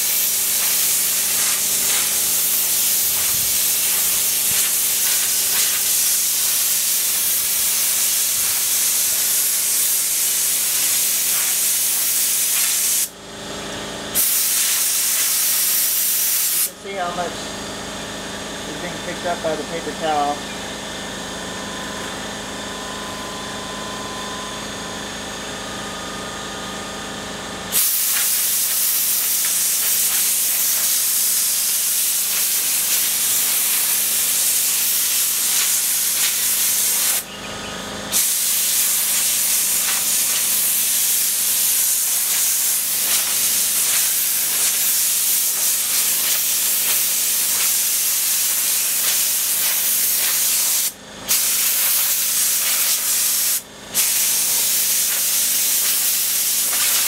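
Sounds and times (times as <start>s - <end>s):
air blow gun hissing: 0.0s - 13.1s, 14.2s - 17.2s, 27.7s - 37.3s, 38.1s - 57.0s
air compressor humming: 0.0s - 57.0s.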